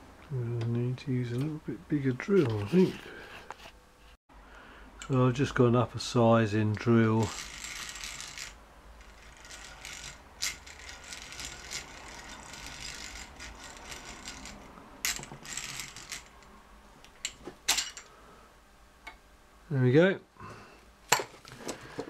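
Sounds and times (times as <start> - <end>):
hand drill scraping metal: 7.1 - 16.4.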